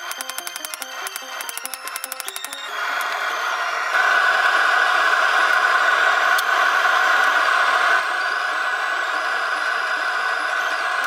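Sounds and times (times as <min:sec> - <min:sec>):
steady mechanical roar: 0:00.0 - 0:11.0.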